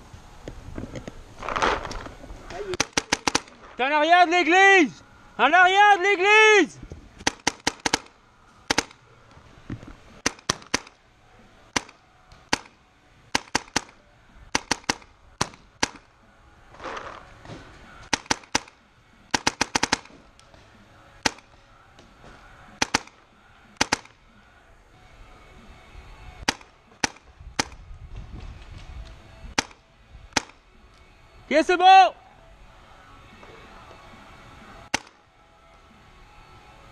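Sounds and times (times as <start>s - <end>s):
paintball markers firing: 1.4s - 3.6s, 7.2s - 9.0s, 10.2s - 11.0s, 11.7s - 16.1s, 18.0s - 20.6s, 21.2s - 21.6s, 22.8s - 23.2s, 23.8s - 24.2s, 26.4s - 27.8s, 28.8s - 31.0s, 34.9s - 35.2s.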